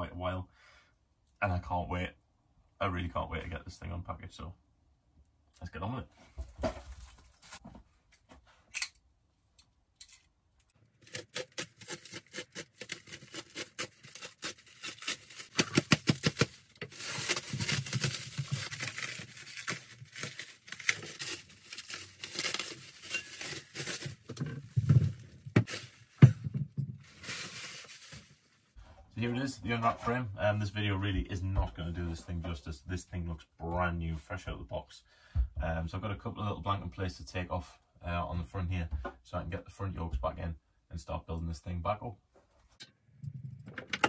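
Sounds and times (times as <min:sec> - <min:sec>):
plastic wrap crackling and tearing: 0:10.8 - 0:26.3, 0:27.0 - 0:28.6.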